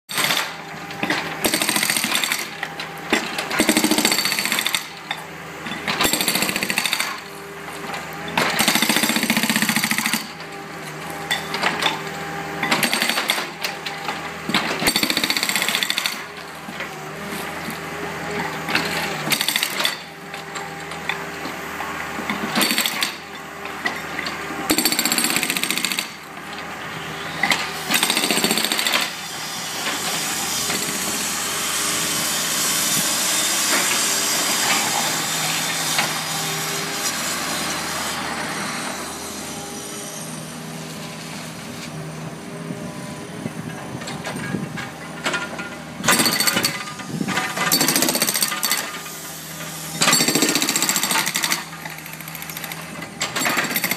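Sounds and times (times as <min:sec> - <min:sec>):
hydraulic breaker hammering concrete: 0:00.1 - 0:07.4, 0:08.2 - 0:10.6, 0:12.6 - 0:17.8, 0:18.4 - 0:21.2, 0:22.2 - 0:26.3, 0:27.4 - 0:38.0, 0:45.3 - 0:53.9.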